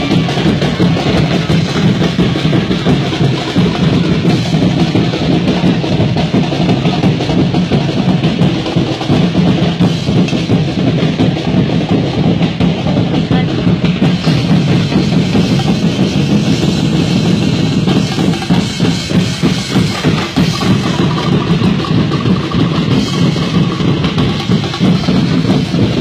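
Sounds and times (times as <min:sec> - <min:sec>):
drum-heavy music: 0:00.0 - 0:26.0.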